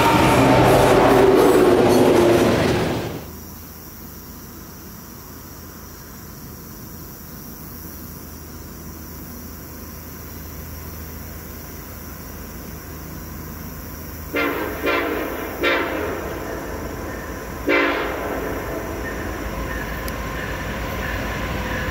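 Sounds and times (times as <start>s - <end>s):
high-pitched hum: 0.0s - 2.9s
wheels squealing: 0.0s - 3.3s
train wheels rumbling on rail: 0.0s - 3.5s, 11.2s - 21.9s
distant diesel locomotive rumble: 0.0s - 3.7s, 8.9s - 21.9s.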